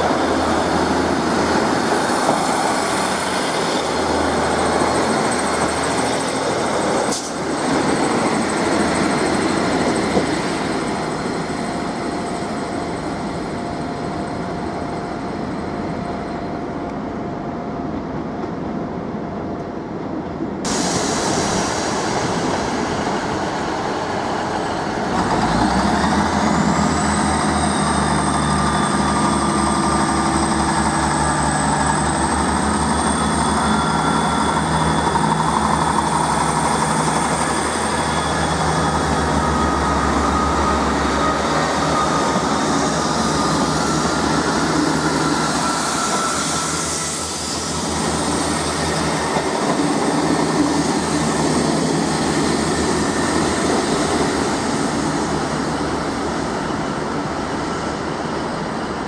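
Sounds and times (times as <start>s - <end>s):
diesel train engine droning: 0.0s - 59.0s
train approaching: 0.0s - 59.0s.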